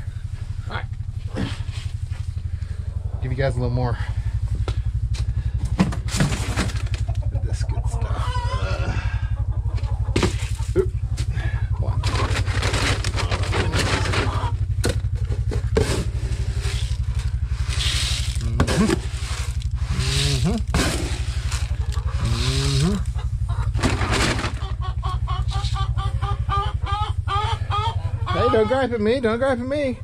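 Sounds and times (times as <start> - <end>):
steady low hum: 0.0 - 30.0
hens clucking: 2.4 - 3.5, 4.2 - 30.0
rustling and clicks: 12.0 - 19.7.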